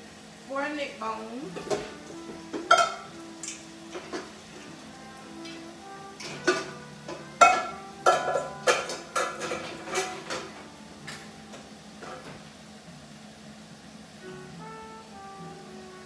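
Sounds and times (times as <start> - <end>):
metal pots and pans clanking: 1.5 - 4.8, 6.2 - 11.4, 12.0 - 12.5.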